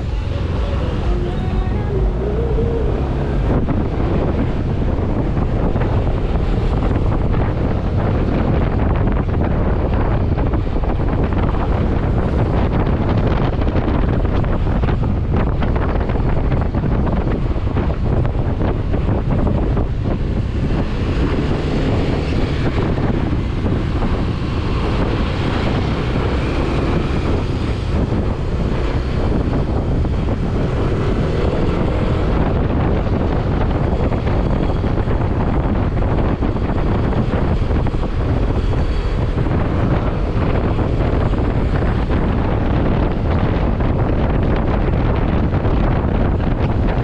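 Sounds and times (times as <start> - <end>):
wind rushing over microphone: 0.0 - 47.0.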